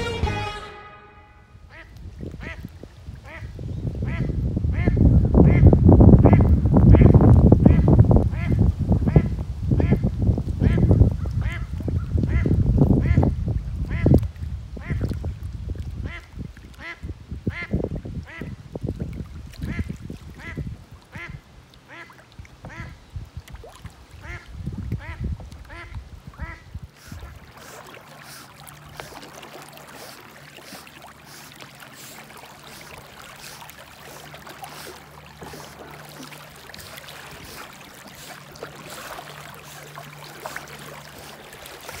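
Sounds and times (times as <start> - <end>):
water splashing and sloshing: 10.1 - 42.0.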